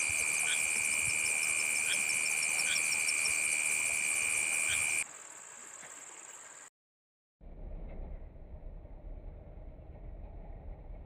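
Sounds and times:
insect trill: 0.0s - 6.7s
short insect chirps: 0.0s - 6.7s.

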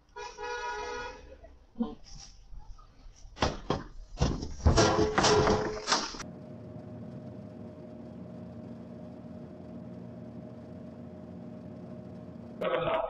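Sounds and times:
loud knocks and clatters: 3.4s - 6.2s
faint hum: 4.7s - 13.0s.

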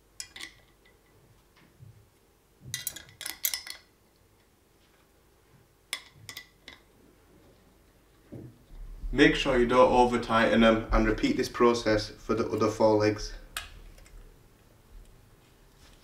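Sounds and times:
small metal screws clinking: 2.7s - 3.9s.

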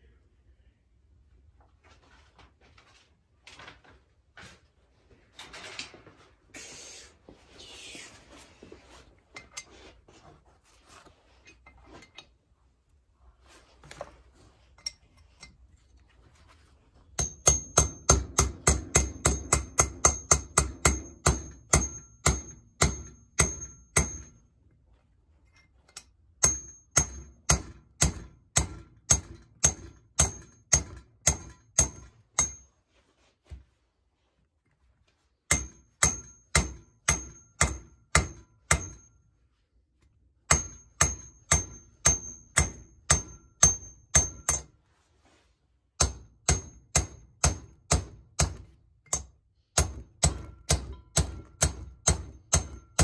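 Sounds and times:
metal parts scraping and handling: 8.3s - 12.5s, 13.4s - 17.0s
hammer striking metal driver: 17.2s - 24.5s, 26.0s - 32.7s, 35.5s - 39.2s, 40.4s - 44.8s, 46.0s - 53.0s.

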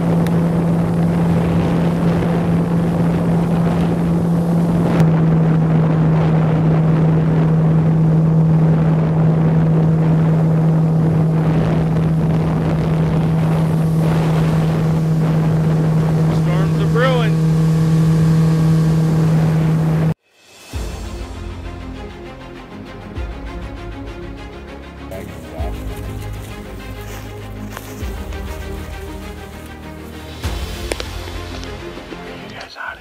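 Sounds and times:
outboard motor droning: 0.0s - 20.2s, 25.1s - 32.5s
water rushing past hull: 0.0s - 20.2s.

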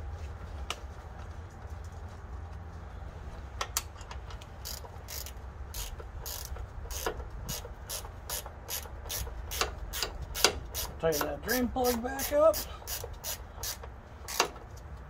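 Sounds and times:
ratchet wrench clicking: 3.8s - 14.6s.

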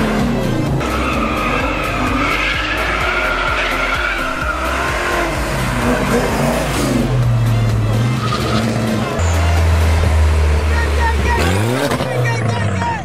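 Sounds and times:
high wavering tire squeal: 0.0s - 7.2s, 8.0s - 9.5s
car engines revving: 0.0s - 13.0s.

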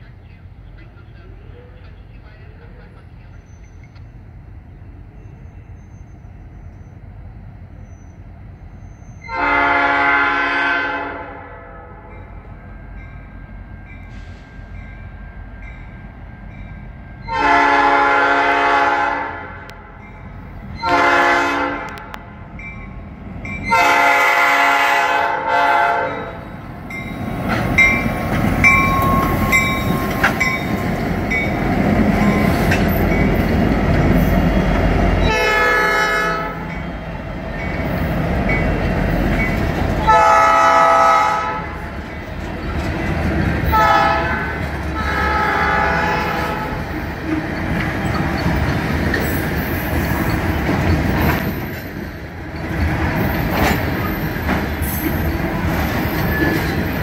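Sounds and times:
locomotive horn blasts: 9.2s - 12.2s, 17.3s - 20.0s, 20.8s - 22.3s, 23.7s - 26.5s, 35.2s - 36.8s, 40.0s - 41.8s, 43.6s - 46.9s
diesel engines: 12.4s - 57.0s
train wheels clattering on rail: 26.9s - 35.3s, 36.6s - 40.2s, 41.8s - 45.7s, 46.3s - 57.0s.

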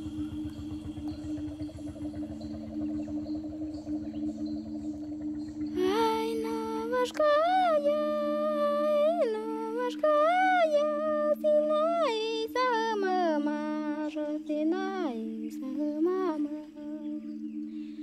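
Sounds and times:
low drone: 0.0s - 18.0s
high voice humming melody: 5.7s - 18.0s.

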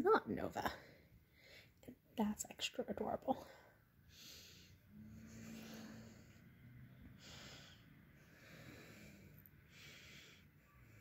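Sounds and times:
cat purring: 4.9s - 7.8s.

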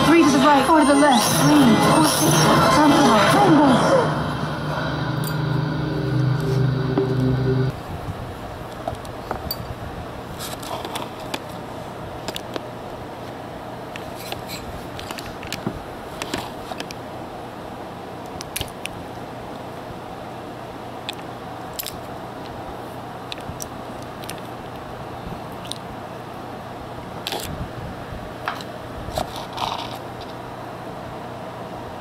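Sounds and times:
streamed show audio: 0.0s - 7.7s
faint steady hum: 0.0s - 32.0s.

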